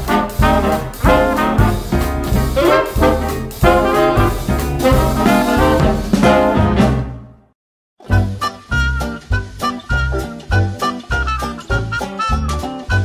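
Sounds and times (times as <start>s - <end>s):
upbeat swing music with brass: 0.0s - 7.5s, 8.1s - 13.0s.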